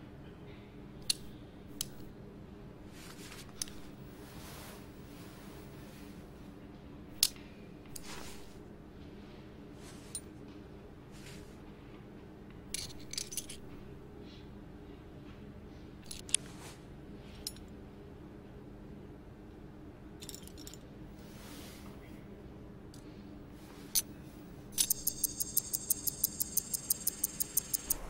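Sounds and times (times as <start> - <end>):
steady low hum: 22.0 - 28.0
metal tweezers clicking on watch parts: 24.8 - 28.0.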